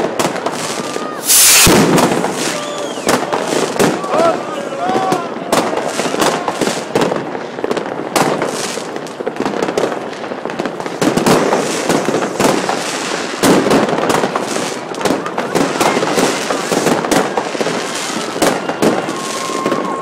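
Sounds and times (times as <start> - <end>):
fireworks bursting: 0.0 - 20.0.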